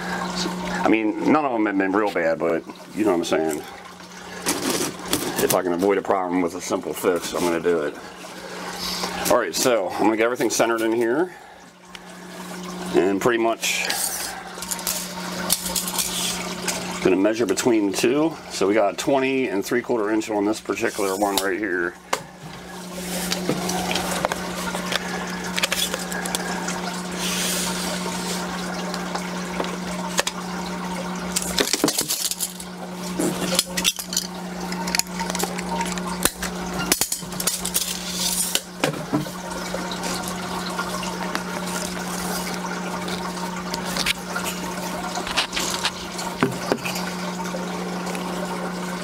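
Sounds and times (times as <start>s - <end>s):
plastic fittings clicking and rustling: 31.3s - 39.3s.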